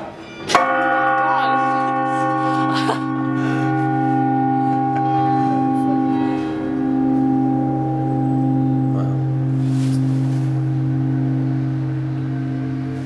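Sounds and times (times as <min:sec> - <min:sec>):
church bells ringing: 0:00.0 - 0:13.0.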